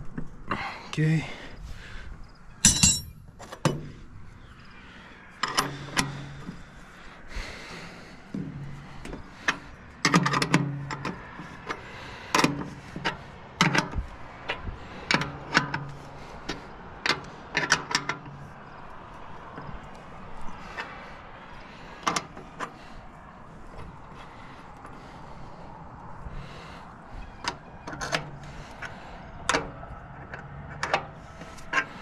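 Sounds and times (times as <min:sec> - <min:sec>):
low ring of hollow metal housing: 0:02.6 - 0:03.3
wrench clinking against metal bolts: 0:02.6 - 0:03.8, 0:05.4 - 0:06.3.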